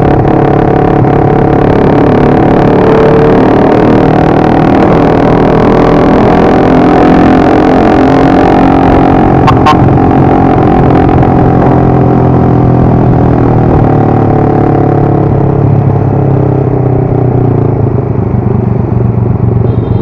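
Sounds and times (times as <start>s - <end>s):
motorcycle engine running: 6.1s - 20.0s.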